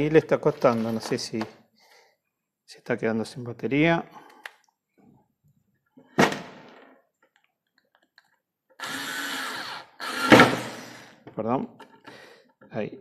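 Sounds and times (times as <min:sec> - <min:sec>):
cordless screwdriver labouring: 0:08.8 - 0:11.1.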